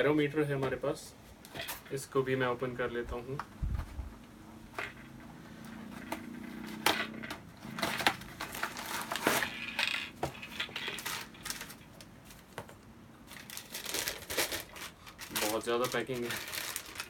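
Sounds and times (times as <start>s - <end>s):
plastic packaging rustling: 4.8s - 17.0s
cardboard box being opened: 7.6s - 12.5s.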